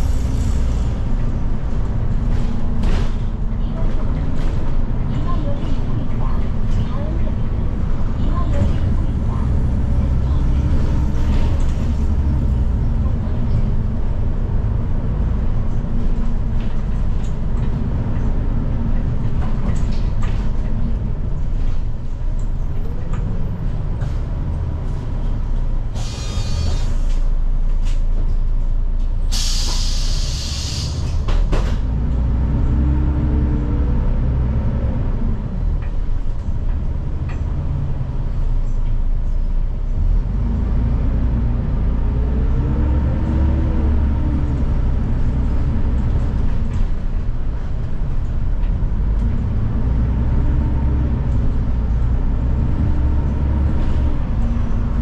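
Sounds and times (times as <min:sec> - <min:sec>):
bus engine rumble: 0:00.0 - 0:55.0
compressed air hiss: 0:26.0 - 0:27.2, 0:29.3 - 0:31.2.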